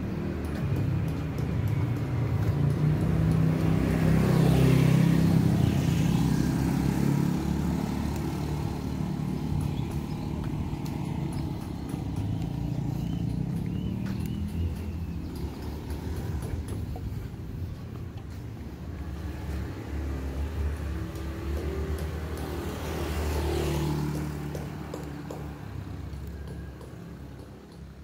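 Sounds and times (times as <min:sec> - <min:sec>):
motorcycles passing: 0:00.0 - 0:28.0.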